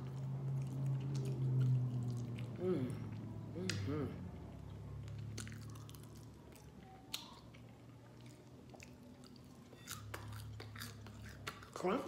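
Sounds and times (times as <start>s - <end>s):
faint chewing: 0.0s - 12.0s
crunching of breading: 5.0s - 12.0s.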